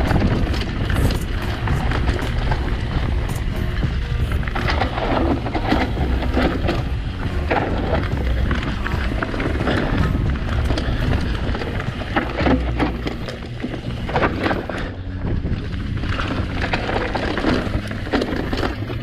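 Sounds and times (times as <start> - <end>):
bike knocking and rattling: 0.0 - 19.0
bike tyres rolling over dirt: 0.0 - 19.0
wind buffeting microphone: 0.0 - 19.0.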